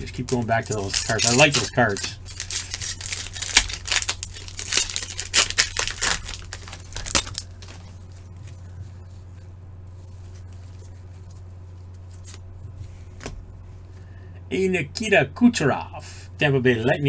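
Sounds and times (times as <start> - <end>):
wrapper tearing and crinkling: 0.0 - 8.3
steady low hum: 0.0 - 17.0.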